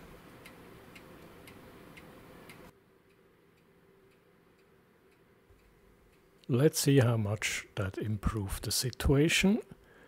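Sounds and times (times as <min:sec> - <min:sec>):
faint pendulum clock ticking: 0:00.1 - 0:09.0.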